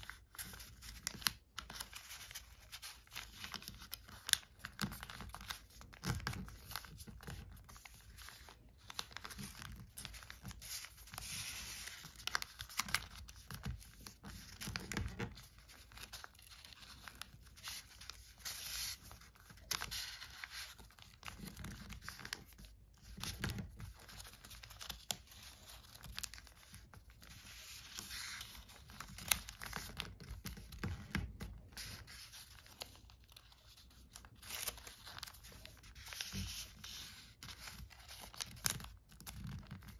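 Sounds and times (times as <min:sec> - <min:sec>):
paper rustling and crinkling: 0:00.0 - 0:39.9.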